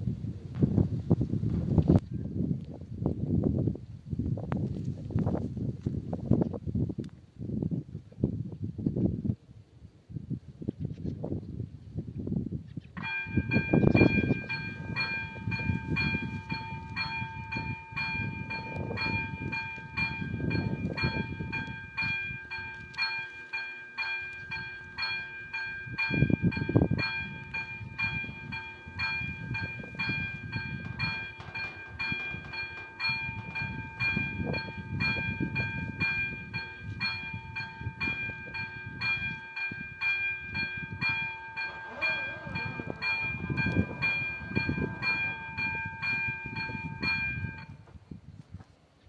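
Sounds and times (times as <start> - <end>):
low rumbling: 13.0 - 23.1, 24.0 - 47.8
level crossing warning bell: 13.0 - 47.8.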